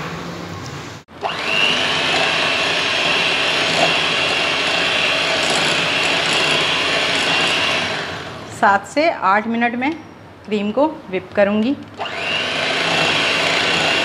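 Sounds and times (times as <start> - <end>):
electric hand mixer whipping cream: 1.2 - 8.4, 12.0 - 14.0.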